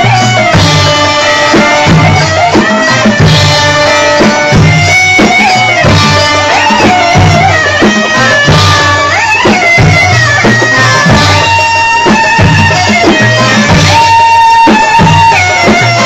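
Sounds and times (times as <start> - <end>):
steady drum rhythm: 0.0 - 16.0.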